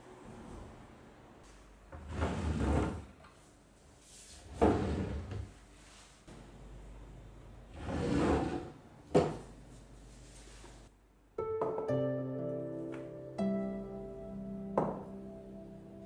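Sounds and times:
drawer sliding open and shut: 1.9s - 3.2s, 4.4s - 5.5s, 7.7s - 9.4s.

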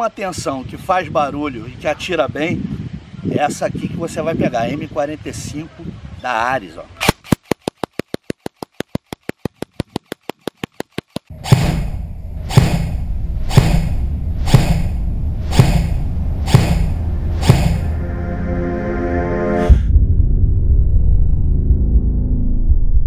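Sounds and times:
dramatic music with heavy bass: 11.3s - 22.9s.

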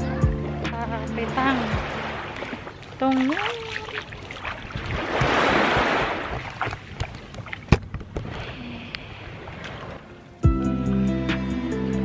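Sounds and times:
waves lapping against shore: 0.6s - 10.4s
wind rumbling on microphone: 4.0s - 10.1s.

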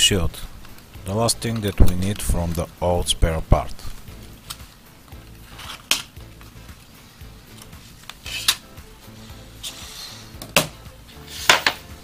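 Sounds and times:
quiet background music: 0.0s - 12.0s
metal shield clicking and scraping: 5.5s - 6.2s, 7.6s - 8.7s.

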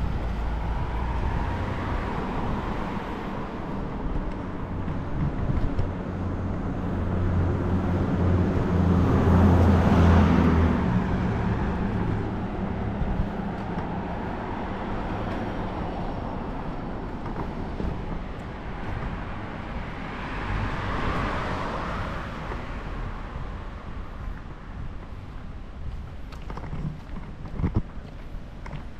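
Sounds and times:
car engine hum passing: 0.0s - 25.3s
car tyre noise: 0.0s - 28.9s.

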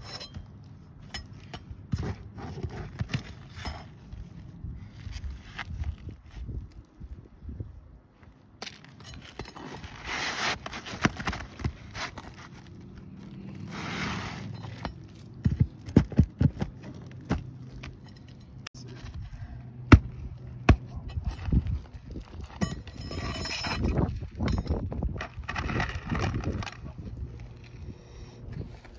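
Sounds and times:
pry bar scraping shingles: 8.7s - 18.0s, 20.7s - 27.2s.

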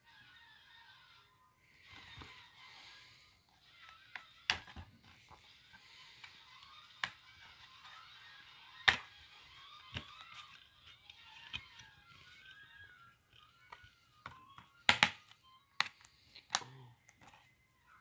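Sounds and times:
plastic case clicks and taps: 14.2s - 15.9s.

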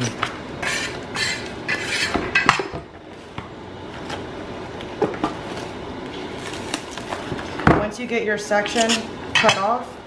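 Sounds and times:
plastic wrap crinkling: 5.4s - 7.6s.

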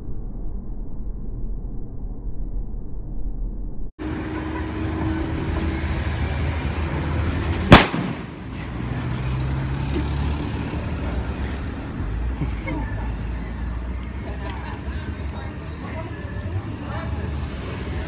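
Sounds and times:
firecracker bang: 7.6s - 8.6s.

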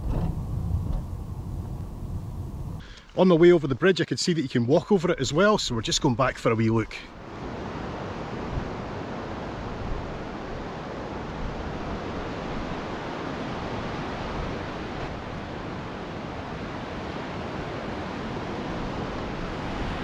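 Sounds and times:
wind buffeting the microphone: 0.0s - 2.8s
rushing white water: 5.1s - 20.0s.

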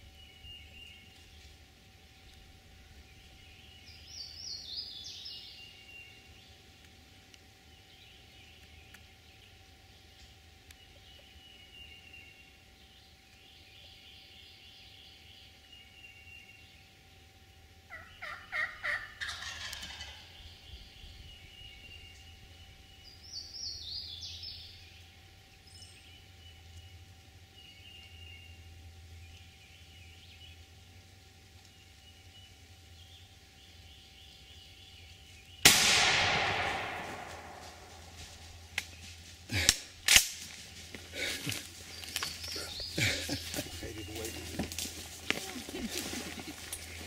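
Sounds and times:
turkey gobbling: 17.9s - 20.4s.

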